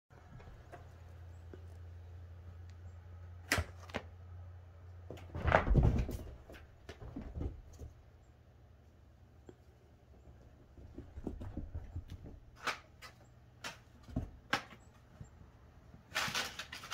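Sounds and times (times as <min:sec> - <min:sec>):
cat landing thump: 0:05.3 - 0:06.4
paws running on carpet: 0:10.5 - 0:12.5.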